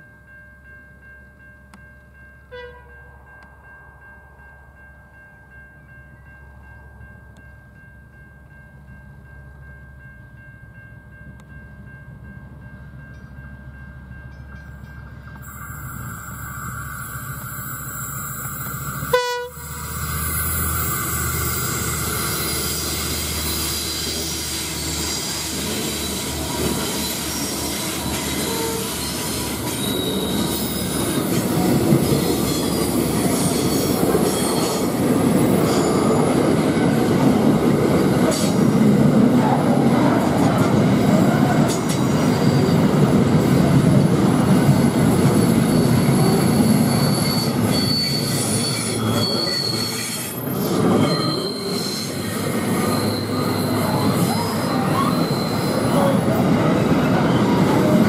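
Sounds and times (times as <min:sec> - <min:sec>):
freight train passing: 0:00.0 - 0:58.0
locomotive horn blast: 0:02.5 - 0:03.0, 0:19.0 - 0:19.7, 0:28.2 - 0:29.0.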